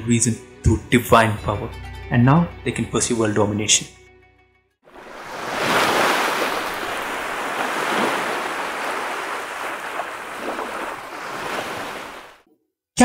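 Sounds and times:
ocean waves washing: 4.9 - 12.4.

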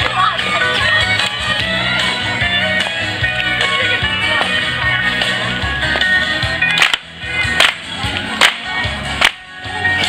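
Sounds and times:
country dance music: 0.0 - 10.0
people clapping together: 6.7 - 9.4.

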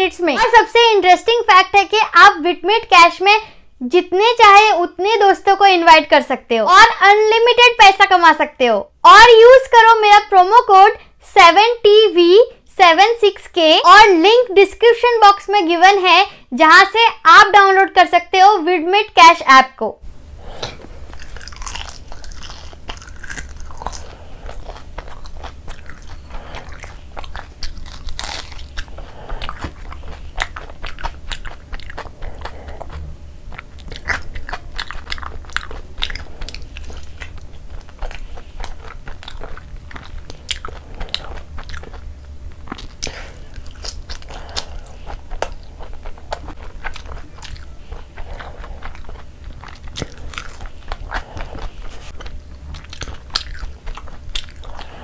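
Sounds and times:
steady low hum: 0.0 - 55.0
chewing and wet mouth sounds: 20.4 - 55.0
crunchy bites: 20.4 - 55.0.

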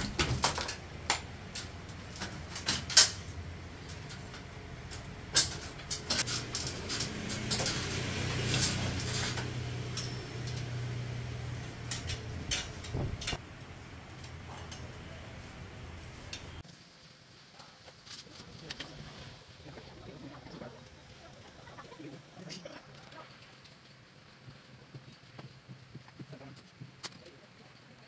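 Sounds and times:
metal frame clicking and clanking: 0.0 - 13.4.

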